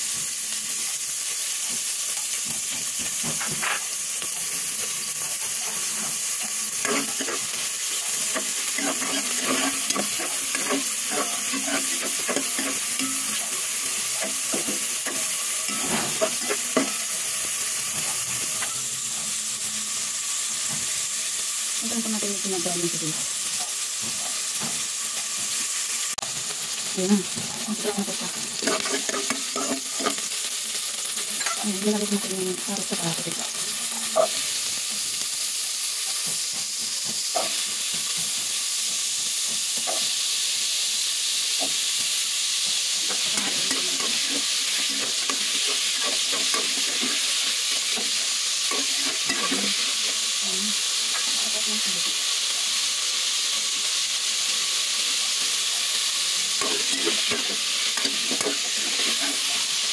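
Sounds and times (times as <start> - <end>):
vegetables sizzling in hot oil: 0.0 - 59.9
spoon scraping against pot: 8.3 - 17.0, 28.6 - 30.3.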